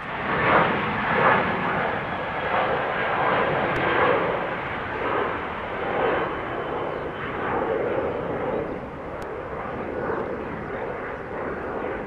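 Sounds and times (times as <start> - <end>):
jet aircraft climbing: 0.0 - 12.0.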